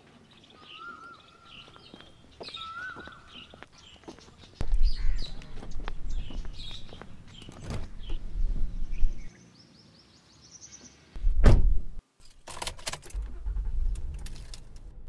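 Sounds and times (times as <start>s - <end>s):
car door shutting: 11.3s - 11.8s
car engine starting and rumbling: 12.6s - 15.0s.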